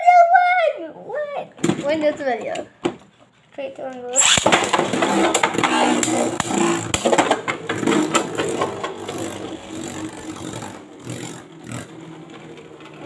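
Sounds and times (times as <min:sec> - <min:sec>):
spinning tops whirring: 0:04.1 - 0:13.0
tops clicking against each other: 0:04.2 - 0:09.4.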